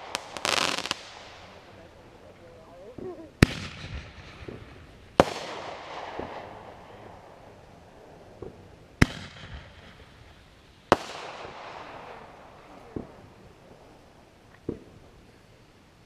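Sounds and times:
firework bangs with echo: 0.0s - 1.7s, 3.4s - 7.5s, 8.3s - 13.4s
faint firework pops: 2.9s - 7.0s, 8.3s - 10.1s, 10.9s - 13.3s, 14.5s - 15.0s.

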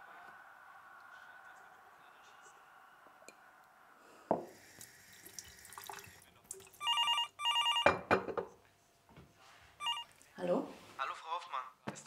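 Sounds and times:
water running in sink: 4.5s - 6.8s
telephone double electronic ring: 6.8s - 8.1s, 9.8s - 10.0s.

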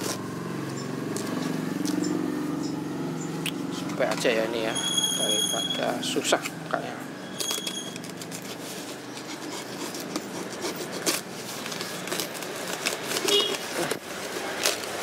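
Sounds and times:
foam and tape crinkling: 0.0s - 0.4s, 7.4s - 15.0s.

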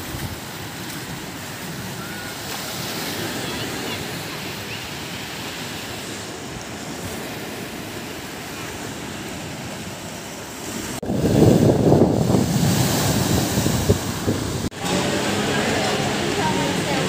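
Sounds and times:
waves breaking on rocks: 0.0s - 17.0s
wind buffeting microphone: 6.2s - 14.8s.

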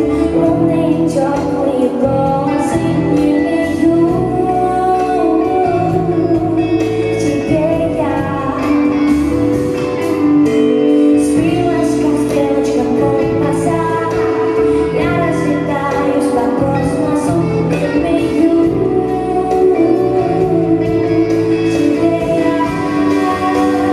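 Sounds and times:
electric bass: 0.0s - 23.9s
keyboard: 0.0s - 23.9s
woman singing long notes: 11.0s - 23.9s.

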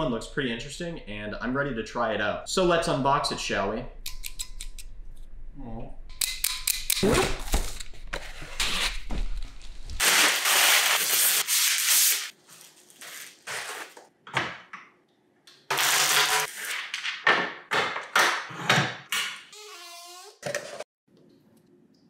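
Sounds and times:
plastic bag rustling: 9.3s - 14.0s
knife slitting packing tape: 10.0s - 14.0s.

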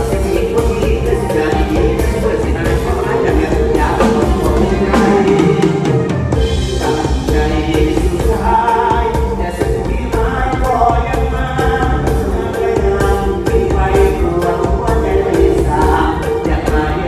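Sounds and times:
drum kit steady beat: 0.0s - 17.0s
live band music: 0.0s - 17.0s
man singing through microphone: 0.0s - 17.0s.

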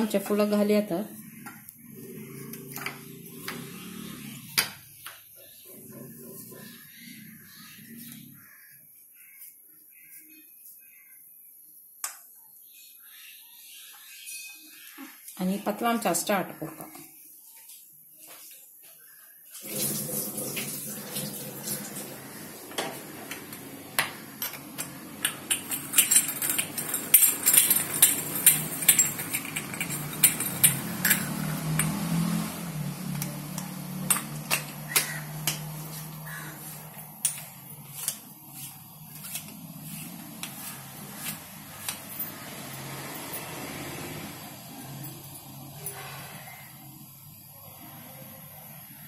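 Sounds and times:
metal clicks and clinks: 24.4s - 32.2s, 33.1s - 35.6s.

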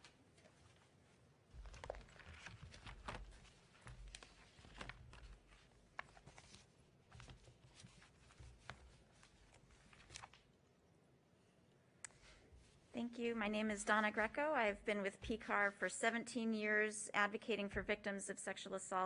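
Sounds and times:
papers being handled: 0.0s - 10.5s.

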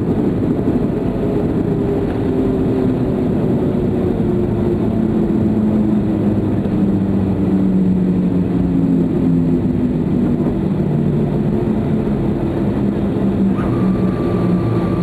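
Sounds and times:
jet engines humming: 0.0s - 15.0s.

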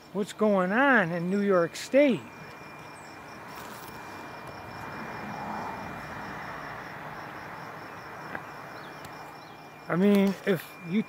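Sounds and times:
insects chirping: 0.0s - 11.0s
distant rushing noise: 4.0s - 8.9s.

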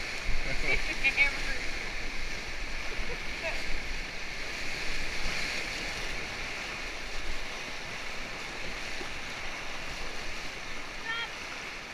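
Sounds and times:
whitewater rushing: 0.0s - 11.9s.

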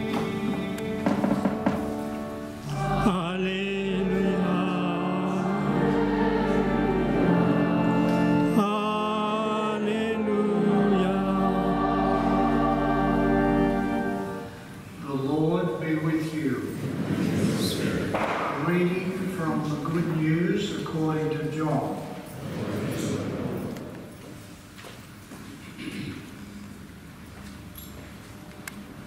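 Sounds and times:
church choir singing: 0.0s - 14.7s.

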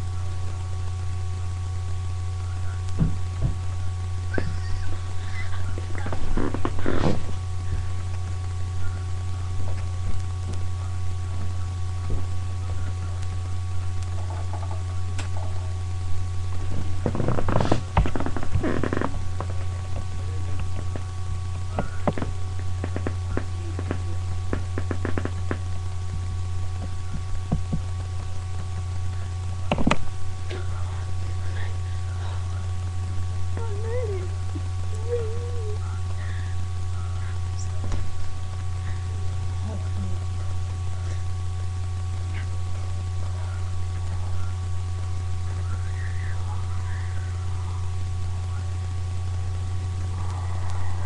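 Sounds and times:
faint whining tones: 0.0s - 51.0s
low electrical hum: 0.0s - 51.0s
sharp clicks and knocks: 29.7s - 30.0s.

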